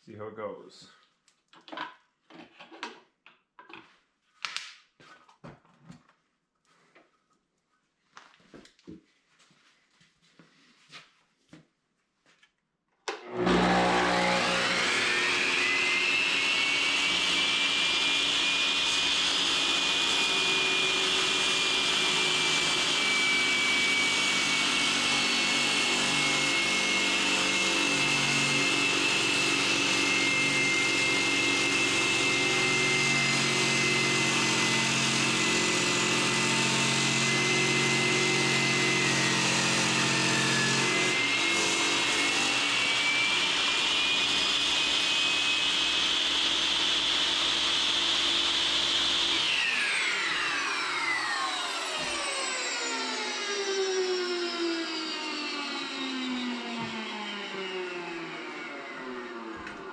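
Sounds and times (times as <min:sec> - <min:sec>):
masonry saw whining: 0:13.1 - 0:59.9.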